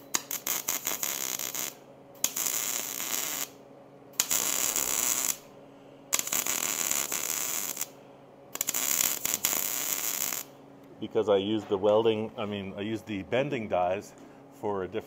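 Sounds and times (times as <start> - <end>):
welder arc crackling: 0.0 - 3.6, 4.2 - 5.5, 6.1 - 10.6.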